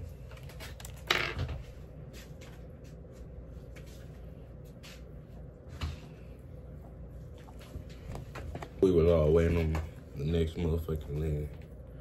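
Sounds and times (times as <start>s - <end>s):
chair scraping: 0.6s - 1.7s.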